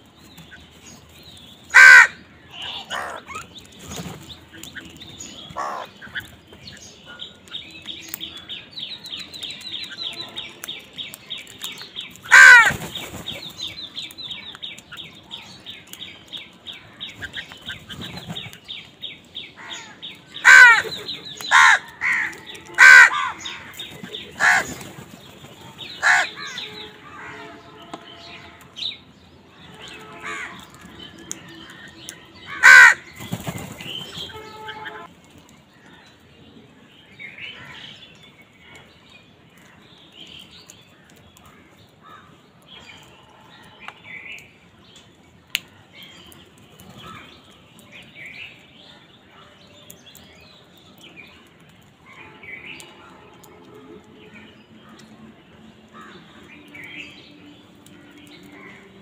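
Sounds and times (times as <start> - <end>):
crows cawing: 1.7 - 3.4, 5.5 - 5.9, 12.2 - 12.8, 19.6 - 23.8, 24.4 - 24.8, 26.0 - 27.6, 30.2 - 30.8, 32.4 - 33.2.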